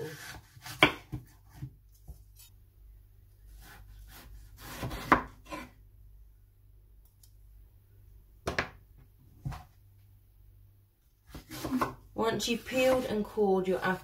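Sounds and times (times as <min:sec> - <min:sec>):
knife cutting apple: 0:00.0 - 0:02.6, 0:03.4 - 0:05.8, 0:11.2 - 0:12.0.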